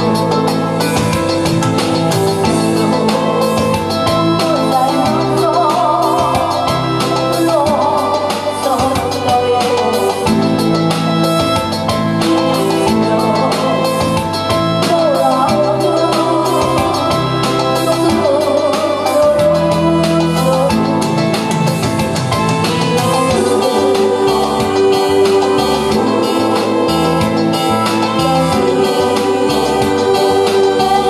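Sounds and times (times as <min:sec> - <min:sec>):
electronic keyboard: 0:00.0 - 0:31.0
steady drum beat: 0:00.0 - 0:31.0
woman singing into a microphone: 0:00.0 - 0:31.0.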